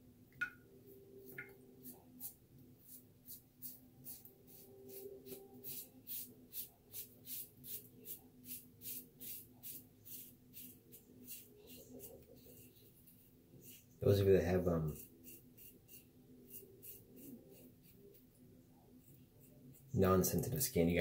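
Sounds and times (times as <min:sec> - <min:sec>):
razor scraping stubble: 0:14.8 - 0:18.2.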